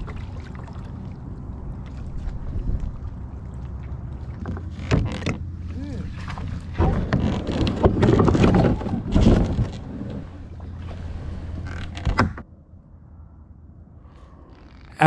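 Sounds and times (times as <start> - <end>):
kayak hull scraping and thumping: 4.2 - 12.5.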